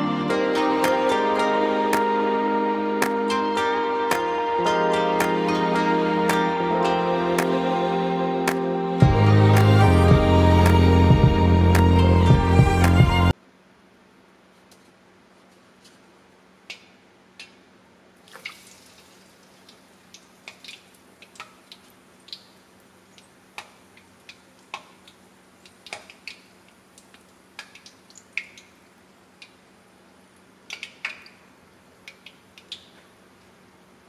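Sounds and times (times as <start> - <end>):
chicken frying in hot oil: 18.2 - 28.9
oil popping and crackling: 18.2 - 29.6.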